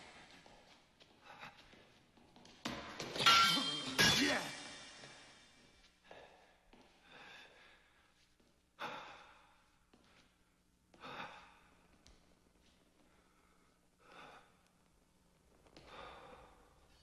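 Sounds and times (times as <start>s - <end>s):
person breathing faintly: 6.0s - 12.0s, 15.8s - 17.0s.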